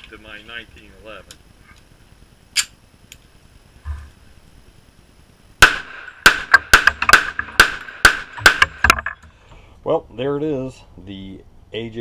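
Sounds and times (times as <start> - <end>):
pistol shots: 5.6 - 8.9.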